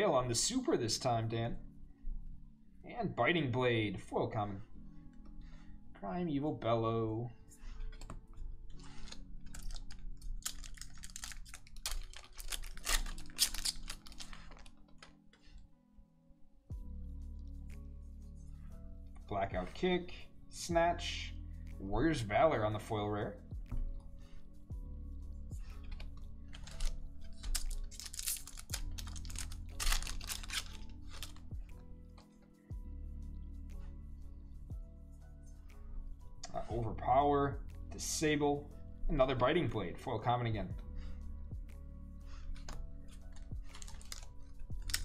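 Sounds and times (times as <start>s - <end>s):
soft background music: 0.0s - 45.0s
foil wrapper crinkling and tearing: 8.8s - 15.2s, 25.8s - 31.4s, 42.6s - 45.0s.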